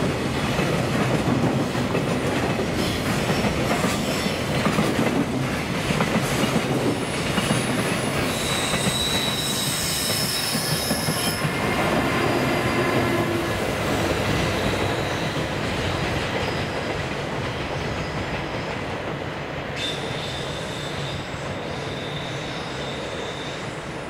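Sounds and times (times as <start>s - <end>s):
freight train wheels rumbling on rail: 0.0s - 24.0s
wheel squeal: 7.5s - 11.6s, 19.8s - 23.9s
thin high steady squeal: 8.0s - 11.6s, 19.9s - 24.0s.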